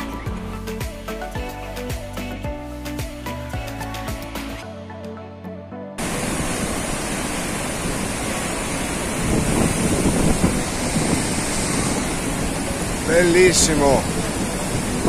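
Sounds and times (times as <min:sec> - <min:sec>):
background music: 0:00.0 - 0:07.1
waterfall rushing: 0:06.0 - 0:15.0
wind buffeting microphone: 0:06.0 - 0:15.0.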